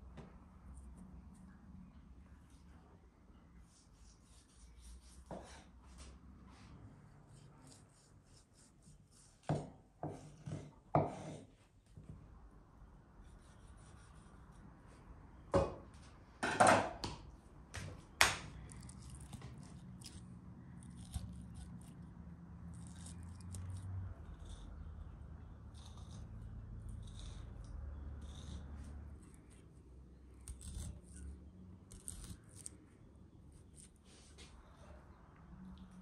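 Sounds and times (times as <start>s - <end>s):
sharp knocks and scrapes: 5.0s - 6.7s, 9.4s - 11.6s.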